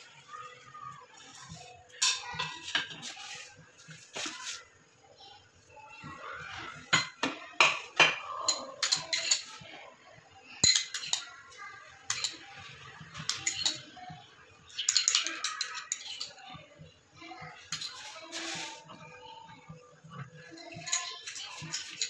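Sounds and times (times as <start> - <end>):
metal utensils clinking on pot: 1.2 - 4.6, 6.7 - 9.8, 10.5 - 11.4, 12.0 - 16.7, 17.4 - 19.0, 20.1 - 22.0.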